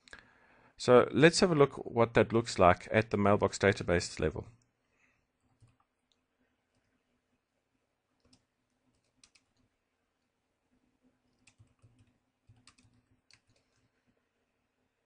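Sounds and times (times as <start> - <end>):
computer keyboard keystrokes: 8.2 - 9.7, 11.3 - 13.8.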